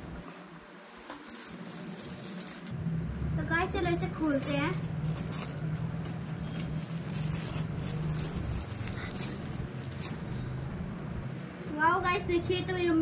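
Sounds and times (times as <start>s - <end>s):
plastic packaging crinkling: 0.0s - 10.7s
steady low hum: 1.6s - 13.0s.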